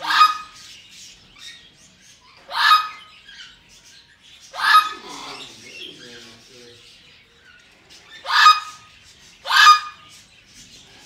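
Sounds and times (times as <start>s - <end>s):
parrot calling loudly: 0.0s - 0.7s, 2.3s - 3.6s, 4.5s - 5.6s, 8.1s - 10.1s.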